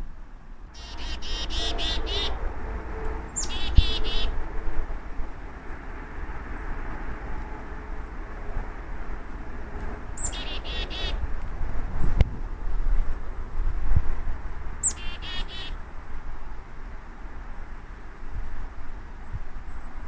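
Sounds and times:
chickadee calling: 0.8 - 2.4, 3.4 - 4.4, 10.2 - 11.2, 14.8 - 15.8.

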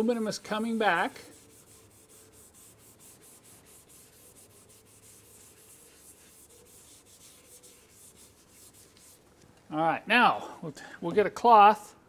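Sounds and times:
abrasive pad scrubbing metal: 0.0 - 9.2.

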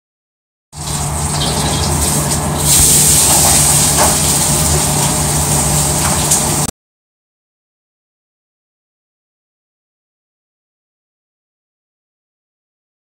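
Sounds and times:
food sizzling in a wok: 0.8 - 6.7
gas burner rumble: 0.8 - 6.7.

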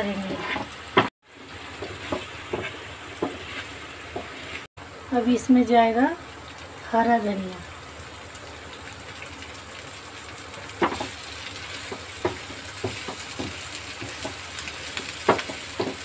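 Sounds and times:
food sizzling in a frying pan: 0.0 - 16.0
spatula scraping a pan: 1.8 - 4.7.

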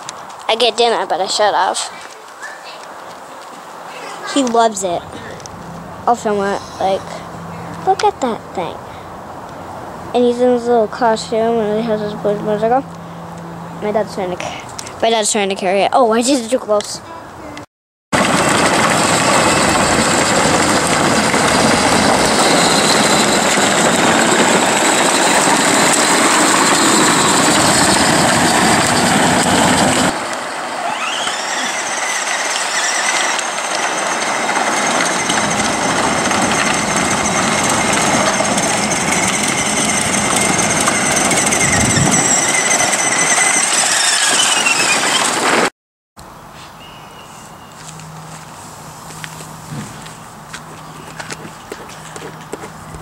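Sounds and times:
toy vehicles whirring and rumbling: 18.2 - 45.7
faint high squeals: 26.6 - 45.4, 46.6 - 48.3.

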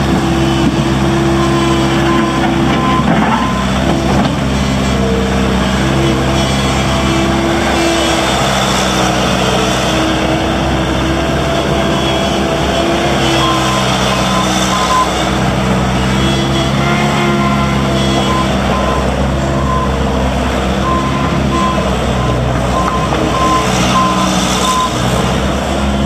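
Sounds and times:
diesel engine running: 0.0 - 26.0
backup alarm beeping: 20.8 - 25.0.

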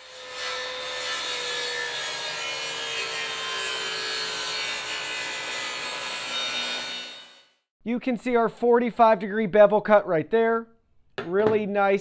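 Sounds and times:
table saw cutting wood: 0.0 - 7.6.

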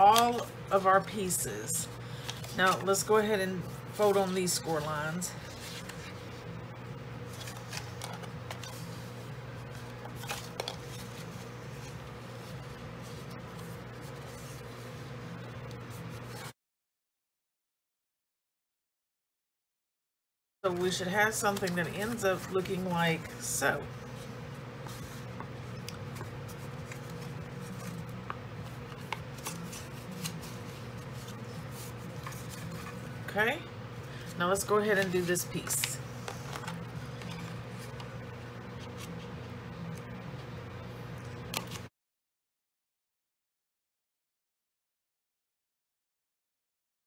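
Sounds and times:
paper rustling and crinkling: 0.0 - 6.4, 7.2 - 16.5, 24.0 - 33.2, 34.2 - 38.1, 38.7 - 39.3
steady low hum: 0.0 - 16.5, 20.6 - 41.9.

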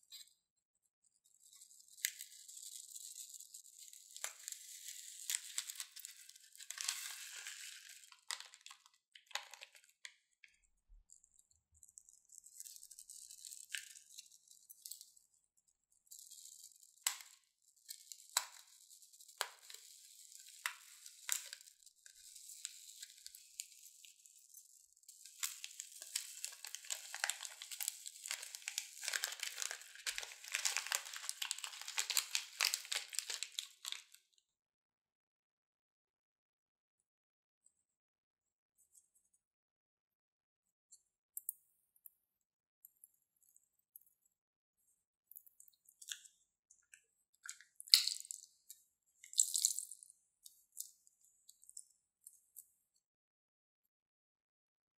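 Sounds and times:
foam balls crackling in slime: 1.4 - 10.3, 11.7 - 15.2, 16.0 - 34.2, 47.4 - 51.9
plastic bags crinkling: 4.4 - 9.8, 17.8 - 24.3, 25.1 - 34.2.

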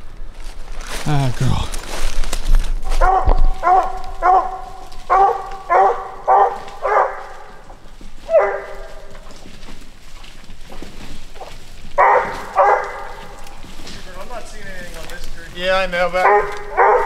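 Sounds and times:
dog barking: 2.9 - 7.6, 8.3 - 9.2, 12.0 - 13.4, 16.2 - 17.0.

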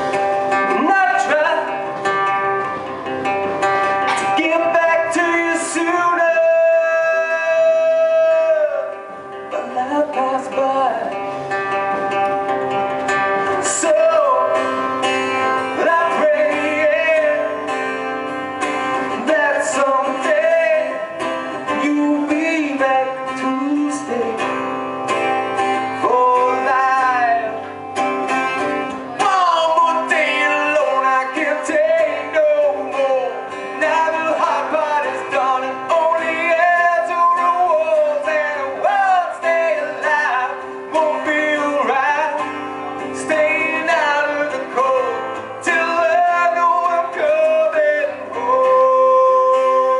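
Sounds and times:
man singing: 0.0 - 2.7, 3.6 - 12.0, 13.4 - 49.9
acoustic guitar: 0.0 - 49.9.

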